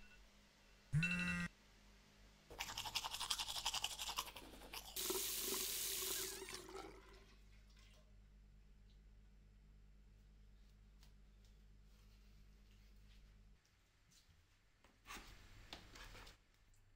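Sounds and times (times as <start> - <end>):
teeth brushing: 2.5 - 5.2.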